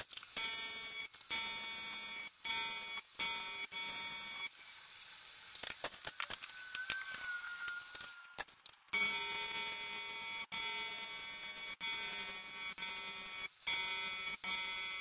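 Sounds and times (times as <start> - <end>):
welding arc buzzing: 0.0 - 15.0
faint whistle: 6.4 - 8.4.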